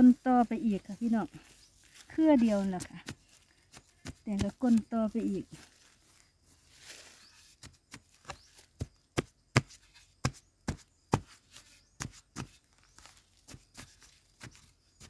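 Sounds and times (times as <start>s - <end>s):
soil scooped by hand: 0.0s - 15.0s
digging tool chopping into clay: 2.4s - 4.9s, 7.6s - 15.0s.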